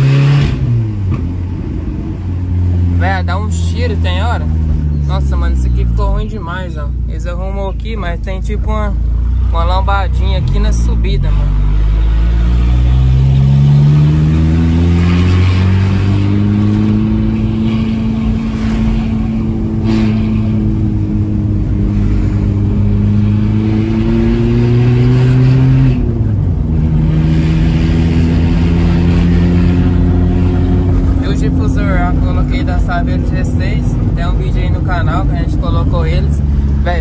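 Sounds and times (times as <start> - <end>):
truck engine accelerating: 0.0 - 37.0.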